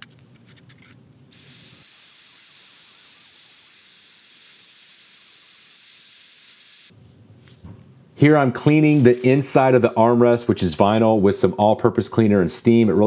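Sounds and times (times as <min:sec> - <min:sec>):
steam cleaner hissing: 0:01.3 - 0:06.9.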